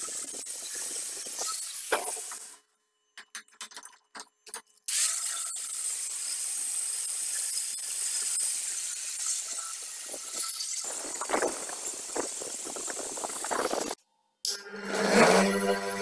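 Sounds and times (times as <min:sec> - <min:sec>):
angle grinder grinding steel: 0:04.9 - 0:16.0.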